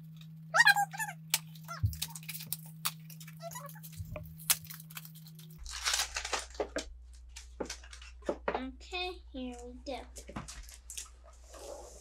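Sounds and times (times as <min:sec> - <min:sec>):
packaging tearing and crinkling: 0:01.3 - 0:06.8.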